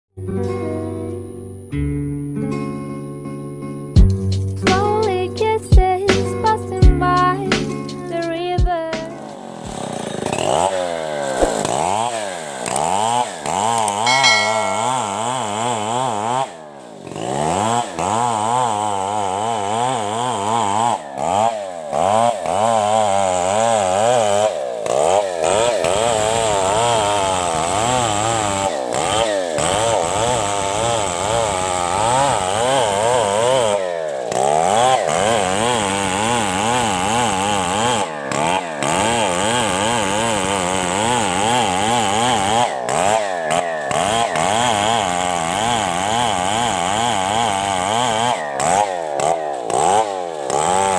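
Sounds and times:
chainsaw cutting wood: 0:09.0 - 0:14.2, 0:16.2 - 0:50.9.

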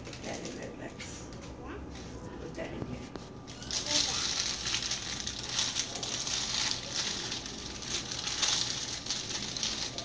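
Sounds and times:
plastic bag crinkling: 0:00.0 - 0:01.0, 0:03.2 - 0:10.0.

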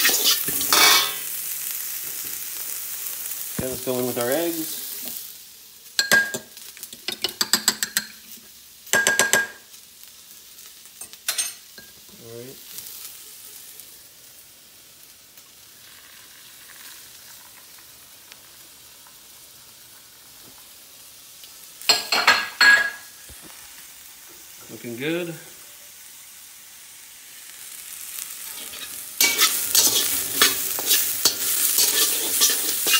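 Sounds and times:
metal spatula scraping a wok: 0:00.0 - 0:01.2, 0:28.4 - 0:32.9
frying sizzle: 0:00.0 - 0:32.9.

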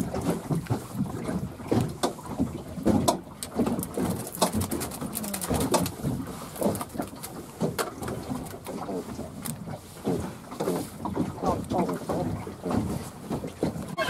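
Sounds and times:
fish flapping in a net: 0:02.8 - 0:09.6.

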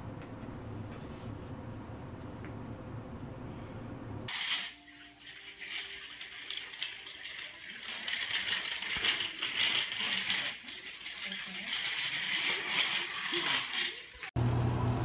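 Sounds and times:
toy stroller rattling on tile: 0:04.3 - 0:14.4.

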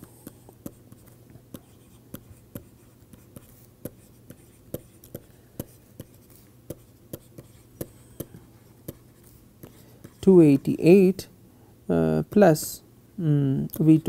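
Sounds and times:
stylus tapping and scratching: 0:00.0 - 0:10.9.

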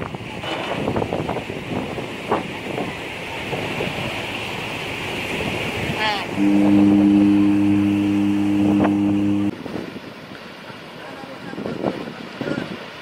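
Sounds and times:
wind on microphone: 0:00.0 - 0:04.2, 0:05.2 - 0:10.1
water rushing along ship hull: 0:00.0 - 0:13.0
deep ship horn blast: 0:06.2 - 0:09.5.

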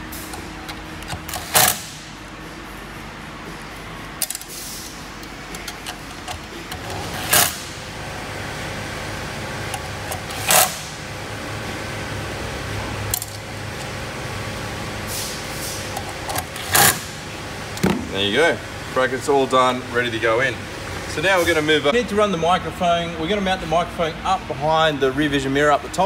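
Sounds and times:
power driver running screws: 0:09.8 - 0:10.9, 0:16.0 - 0:17.1.

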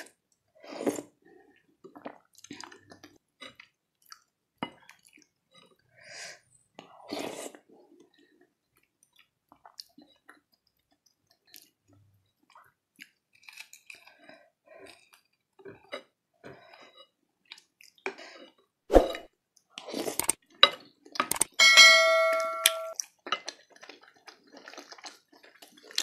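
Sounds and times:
close chewing sounds: 0:00.0 - 0:18.7, 0:23.0 - 0:26.0.

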